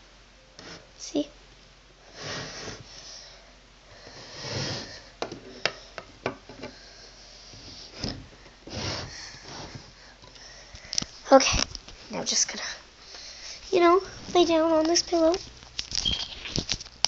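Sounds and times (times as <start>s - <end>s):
rubbing and rustling in drawer: 7.6s - 9.9s.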